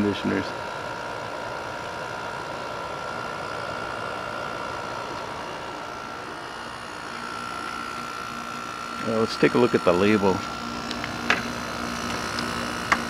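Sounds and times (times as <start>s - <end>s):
faint constant whine: 0.0s - 13.0s
window air conditioner humming: 0.0s - 13.0s.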